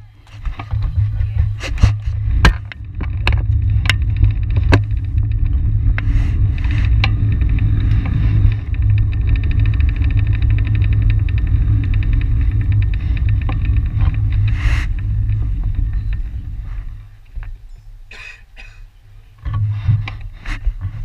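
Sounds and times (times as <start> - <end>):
wind on microphone: 0.0 - 18.1, 19.4 - 21.0
bicycle rolling on concrete: 0.0 - 21.0
sharp clicks and knocks: 0.3 - 17.6
fast even ticking: 2.8 - 17.3.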